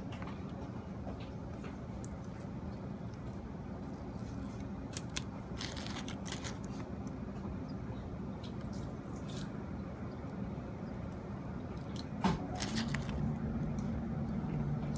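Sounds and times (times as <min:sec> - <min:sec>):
steady low hum: 0:00.0 - 0:14.9
crisp clicks and crackles of tape: 0:04.2 - 0:06.8.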